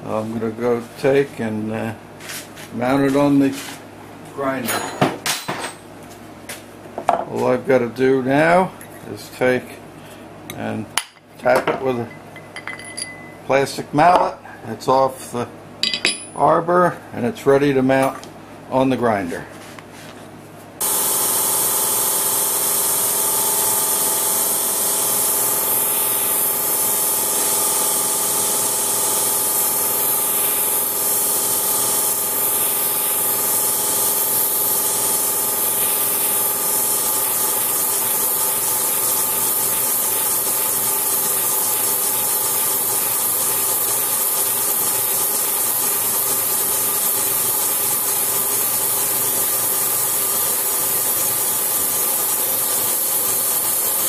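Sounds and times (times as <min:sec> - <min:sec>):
grinder wheel grinding steel: 0:20.8 - 0:54.0
spindle motor hum: 0:20.8 - 0:54.0.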